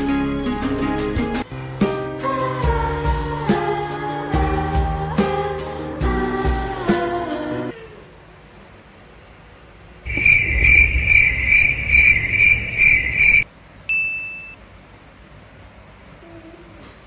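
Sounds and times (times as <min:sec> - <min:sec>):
cricket chirping: 0:10.1 - 0:13.4
short high beep: 0:10.1 - 0:14.6.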